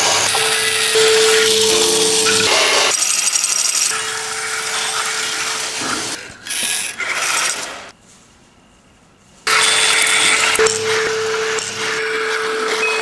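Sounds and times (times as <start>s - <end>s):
steady tone: 0.0s - 2.9s, 10.6s - 13.0s
bell ringing: 0.2s - 2.9s, 10.6s - 13.0s
toy train clatter and rattle: 6.4s - 7.9s.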